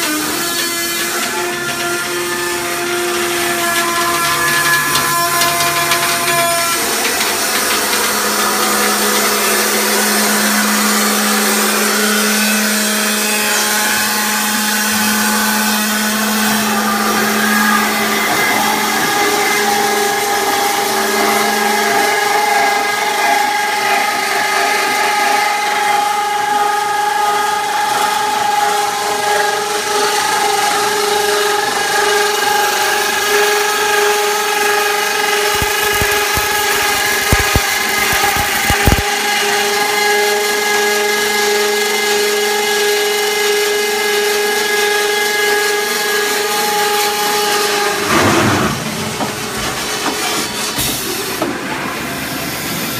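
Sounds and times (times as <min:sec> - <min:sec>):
machine whine: 0:00.0 - 0:40.6
roll forming machine drone: 0:00.0 - 0:52.9.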